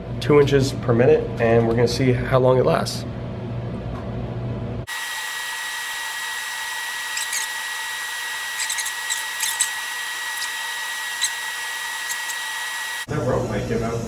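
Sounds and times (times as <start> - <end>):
testing machine high whine: 4.9 - 13.1.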